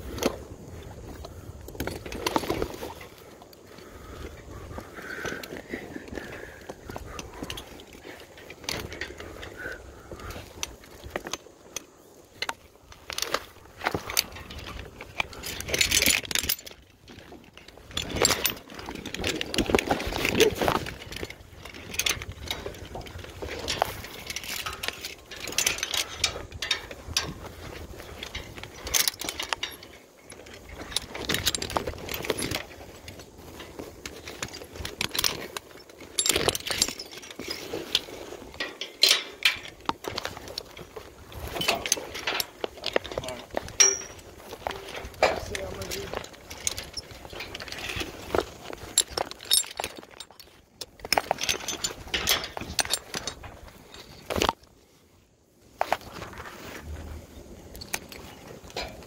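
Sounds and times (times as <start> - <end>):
rustling: 0.0 - 59.0
metal hardware clinking: 12.4 - 54.6.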